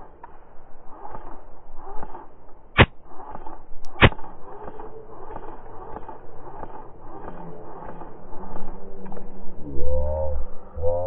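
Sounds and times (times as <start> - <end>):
faint ticks: 1.0 - 9.4
loud sharp cracks: 2.0 - 8.6
low rumble: 2.9 - 11.0.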